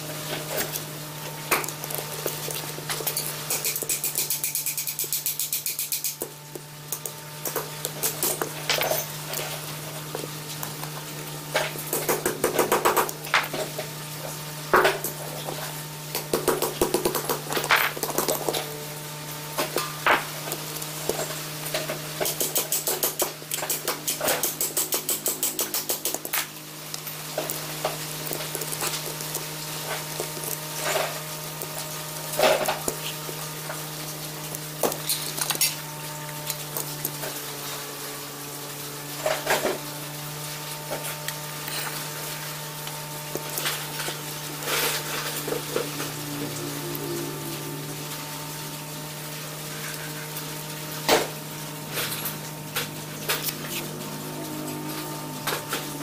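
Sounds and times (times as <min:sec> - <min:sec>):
metal tools clicking and clinking: 0:02.9 - 0:06.3.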